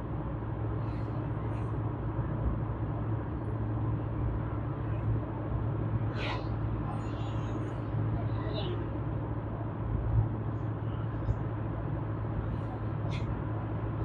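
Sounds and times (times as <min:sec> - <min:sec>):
car engine and road noise: 0:00.0 - 0:14.0.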